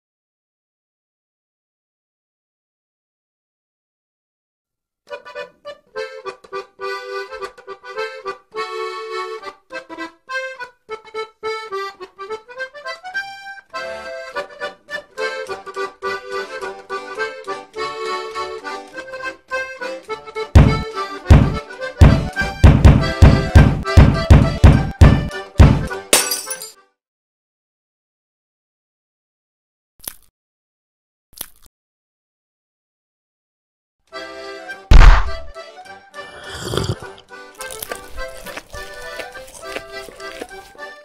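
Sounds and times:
accordion music: 0:05.1 - 0:26.2, 0:34.1 - 0:41.0
heavy thumps: 0:20.6 - 0:25.9, 0:34.9 - 0:35.5.

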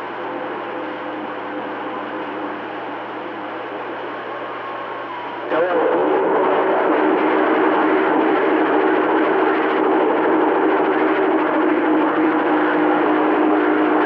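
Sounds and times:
faint hum tones: 0:00.0 - 0:14.0
radio static: 0:05.4 - 0:14.0.

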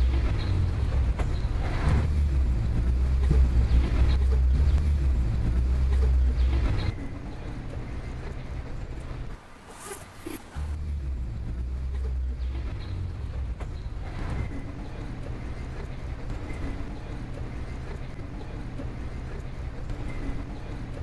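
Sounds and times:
low steady rumble: 0:00.0 - 0:09.4, 0:10.6 - 0:21.0
zipper pulled: 0:09.4 - 0:10.8.

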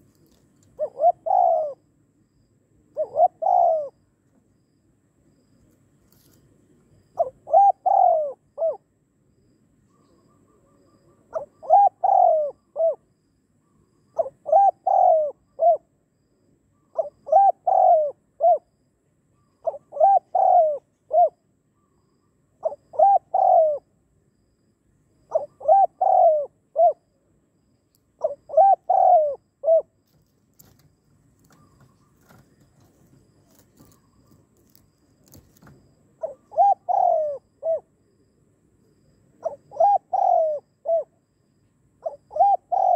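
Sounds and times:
dove cooing: 0:00.0 - 0:01.9, 0:02.9 - 0:04.0, 0:07.2 - 0:08.9, 0:10.0 - 0:13.1, 0:14.2 - 0:16.0, 0:16.8 - 0:18.7, 0:19.6 - 0:21.4, 0:22.6 - 0:23.9, 0:25.3 - 0:27.1, 0:28.2 - 0:30.0, 0:31.4 - 0:37.9, 0:39.4 - 0:41.2, 0:42.0 - 0:42.9.

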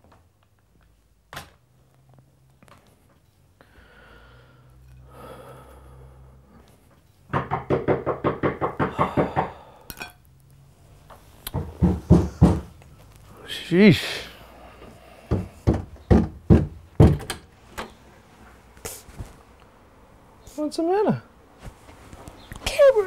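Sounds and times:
rapid knocking on door: 0:07.3 - 0:09.6, 0:11.5 - 0:12.8, 0:15.3 - 0:17.4.

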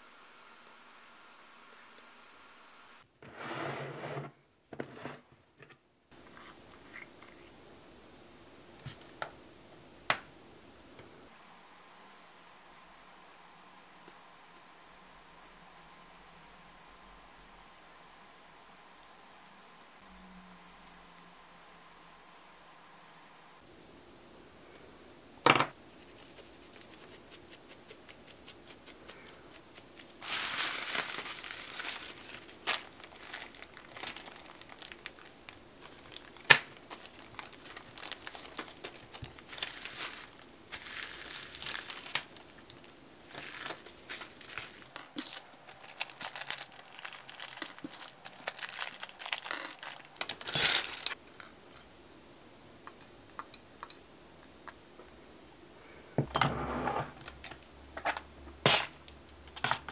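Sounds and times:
plastic bags crinkling: 0:30.0 - 0:51.2.

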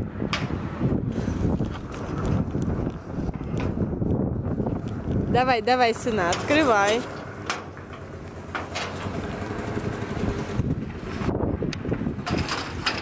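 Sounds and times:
metal gate clanking: 0:06.1 - 0:09.9, 0:12.2 - 0:13.0
engine idling: 0:06.1 - 0:13.0.

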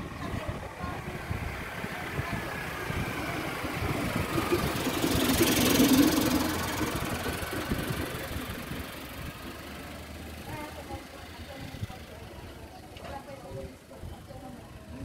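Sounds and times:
steady low rumble: 0:00.0 - 0:09.6
pickup truck driving past: 0:00.8 - 0:12.8.

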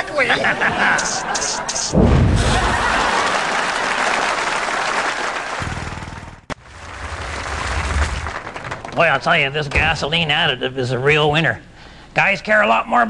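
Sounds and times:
fireball whoosh: 0:01.9 - 0:03.0, 0:06.6 - 0:08.5
audience applause: 0:02.4 - 0:09.3.

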